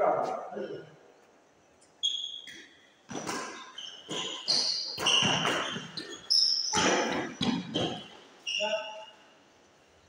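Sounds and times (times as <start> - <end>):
shoes squeaking on floor: 1.9 - 9.3
racket hitting shuttlecock: 2.5 - 8.0.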